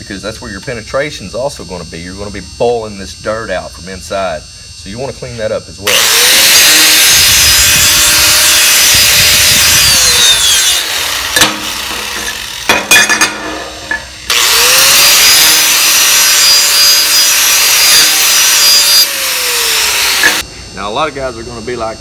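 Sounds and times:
angle grinder wire wheel brushing metal: 0:05.9 - 0:20.4.

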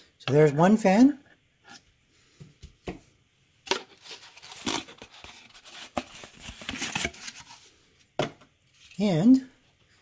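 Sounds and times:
packaging rustling and crinkling: 0:03.7 - 0:07.7.

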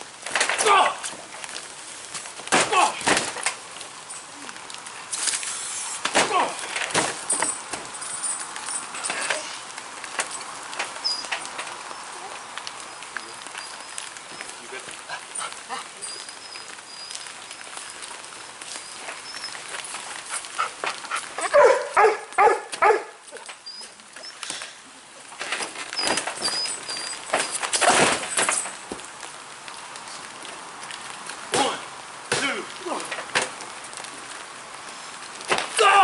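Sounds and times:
rain hissing: 0:00.0 - 0:36.0
dog barking: 0:21.4 - 0:23.2.

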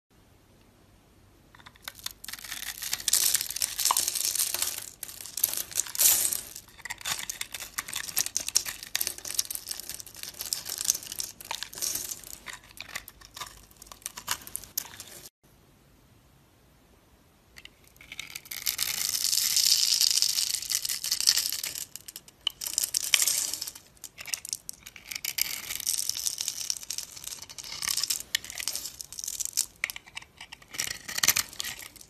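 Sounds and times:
knife shaving soap crackling: 0:01.6 - 0:06.0, 0:06.6 - 0:15.4, 0:24.1 - 0:32.0.

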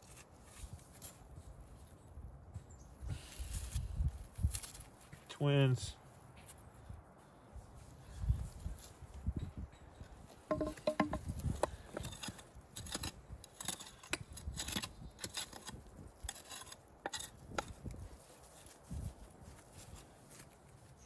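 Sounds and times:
stone clinking against stone: 0:10.5 - 0:11.3
hand scraping in dry clay: 0:10.6 - 0:21.0.

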